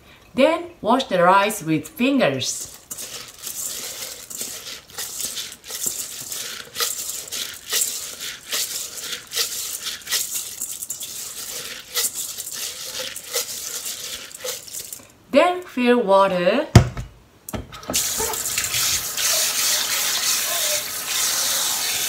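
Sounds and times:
rice scraping in metal bowl: 2.3s - 15.1s, 17.9s - 22.0s.

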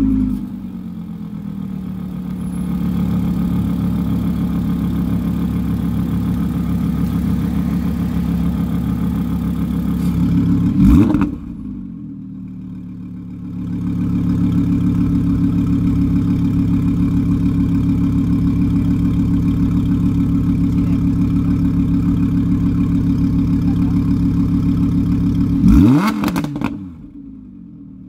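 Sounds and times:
car engine idling: 0.0s - 28.0s
engine rev blip: 25.6s - 27.0s.

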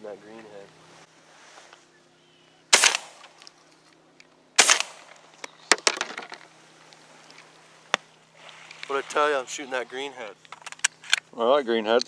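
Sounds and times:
loud shotgun shots: 2.7s - 3.4s, 4.6s - 5.2s
quieter sharp cracks: 2.7s - 3.6s, 4.6s - 6.5s.

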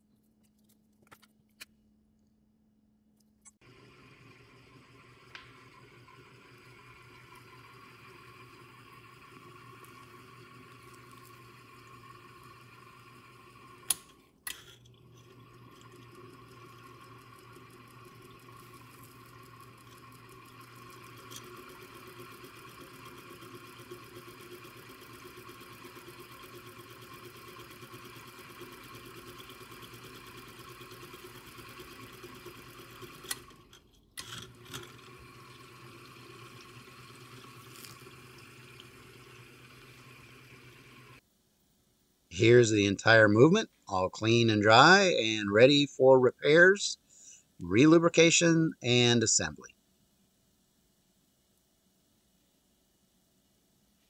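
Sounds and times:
small motor humming: 3.6s - 41.2s.

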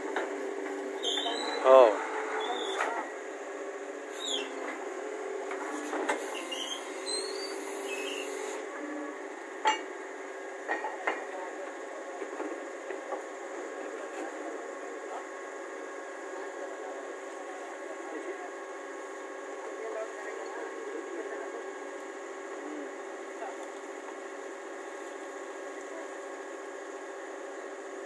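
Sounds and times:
drilling rig mechanical drone: 0.0s - 9.6s.

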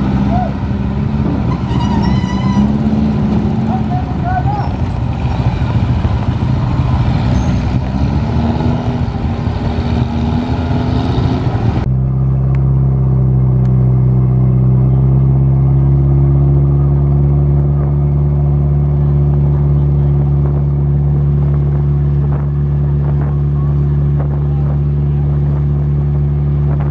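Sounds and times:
boat engine running loud: 0.0s - 26.9s
motorbike engines running: 0.0s - 26.9s
people talking: 0.2s - 0.6s, 3.5s - 5.0s, 18.8s - 20.9s, 22.2s - 25.8s.

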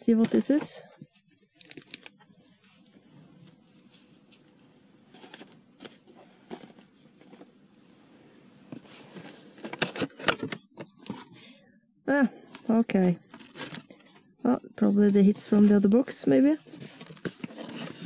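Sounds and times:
cardboard clicks and rustles: 5.1s - 7.6s, 8.7s - 11.5s, 12.6s - 14.3s, 16.7s - 18.0s.

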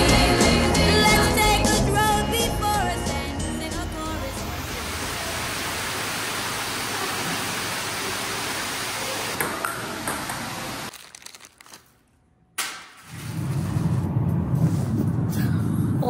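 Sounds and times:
steady rushing noise: 13.1s - 16.0s.

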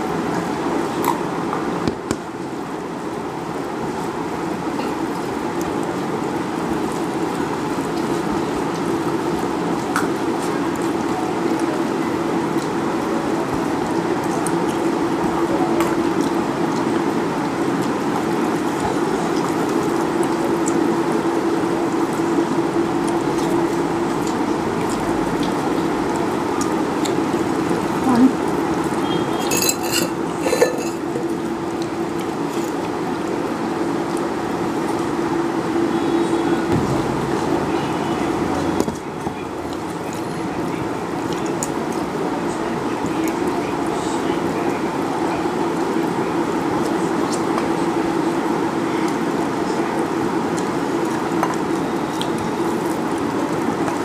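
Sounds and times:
background hiss with low hum: 0.0s - 54.0s
eating rice by hand: 12.4s - 35.2s
steel dishes clinking: 29.4s - 31.2s.

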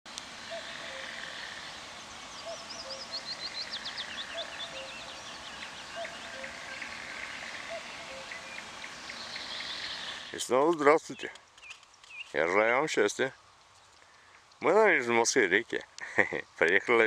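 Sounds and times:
cuckoo calling: 0.5s - 10.3s
songbird singing high notes: 2.3s - 10.4s.

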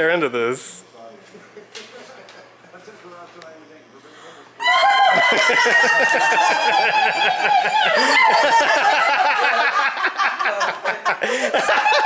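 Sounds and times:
woman screaming with delight: 4.6s - 8.8s
people laughing: 4.6s - 12.0s.

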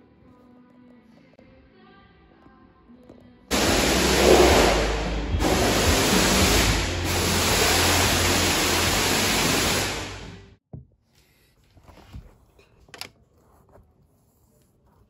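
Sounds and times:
faint music: 0.0s - 10.6s
loud static hiss: 3.5s - 10.6s.

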